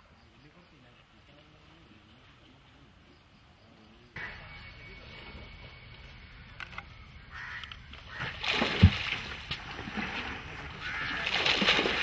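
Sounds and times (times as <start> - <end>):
water splashing: 8.0 - 12.0.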